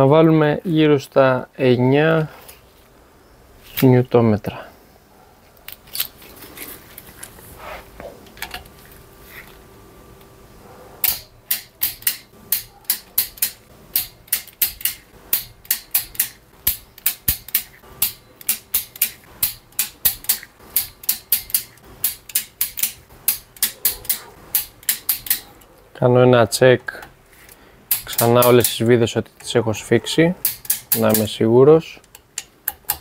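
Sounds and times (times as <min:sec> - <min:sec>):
torque wrench ratcheting clicks: 0:11.0 - 0:25.5, 0:27.9 - 0:28.8, 0:30.4 - 0:31.3.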